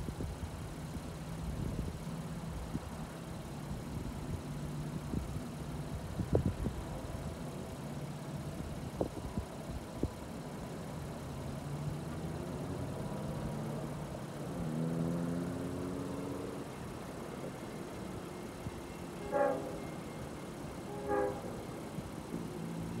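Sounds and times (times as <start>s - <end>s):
diesel locomotive engine running: 0.0s - 23.0s
train horn blasts: 19.1s - 20.2s, 20.8s - 21.8s.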